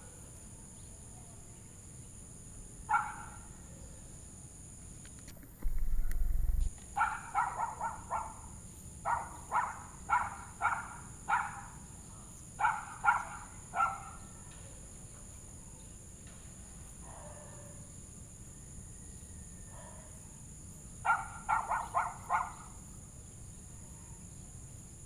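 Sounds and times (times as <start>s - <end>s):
low rumble on microphone: 5.3s - 6.9s.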